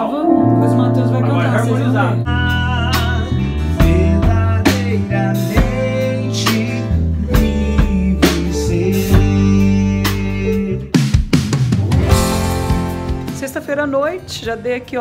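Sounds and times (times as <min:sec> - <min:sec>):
guitar: 0:00.0 - 0:11.0, 0:11.6 - 0:15.0
bass notes: 0:00.0 - 0:14.8
drum kit: 0:00.7 - 0:15.0
man singing into a microphone: 0:02.3 - 0:11.0.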